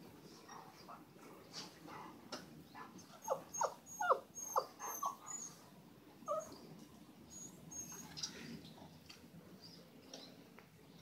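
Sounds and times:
puppy whining: 0:03.2 - 0:05.6, 0:06.2 - 0:06.6, 0:07.3 - 0:08.2.

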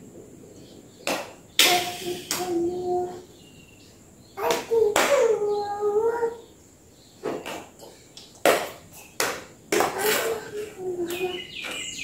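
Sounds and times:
high chirps: 0:11.0 - 0:12.0.

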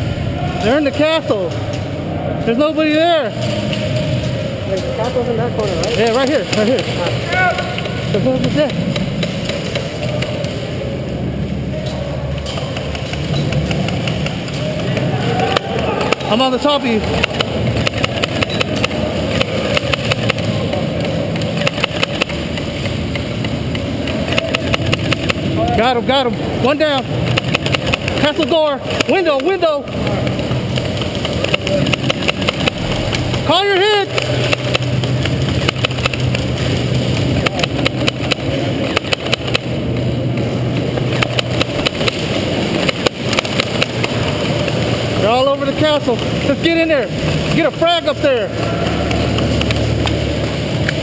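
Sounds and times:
pellets striking: 0:00.0 - 0:11.0, 0:11.8 - 0:51.0
steady low hum: 0:00.0 - 0:51.0
airsoft guns firing: 0:12.5 - 0:25.6, 0:27.0 - 0:36.7, 0:40.8 - 0:44.9.

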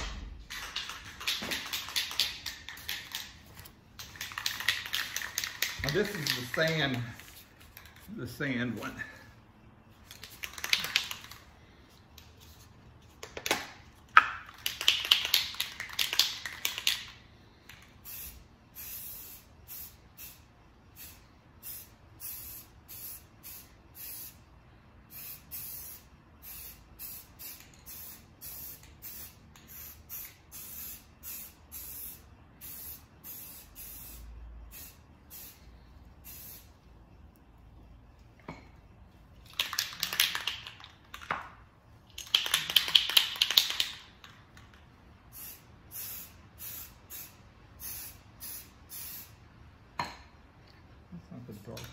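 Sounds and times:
spray can rattling: 0:00.0 - 0:08.1, 0:10.0 - 0:11.5, 0:13.1 - 0:20.4, 0:25.1 - 0:35.6, 0:36.2 - 0:36.7, 0:39.4 - 0:41.5, 0:42.1 - 0:49.3
spray paint hissing bursts: 0:14.6 - 0:24.5, 0:25.1 - 0:36.8, 0:45.3 - 0:49.4.

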